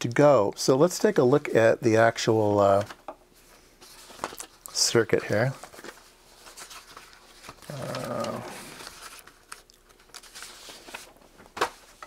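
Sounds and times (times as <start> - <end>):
paper rustling: 3.8 - 12.0
low voice-like groan: 7.7 - 8.8.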